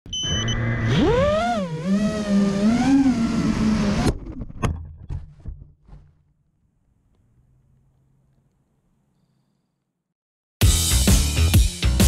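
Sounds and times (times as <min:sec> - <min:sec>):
drone motors whining: 0:00.1 - 0:04.4.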